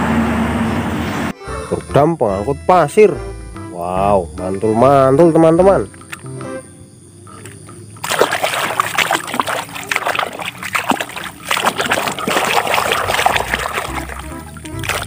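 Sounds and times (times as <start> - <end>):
water splashing in plastic tub: 7.5 - 15.0.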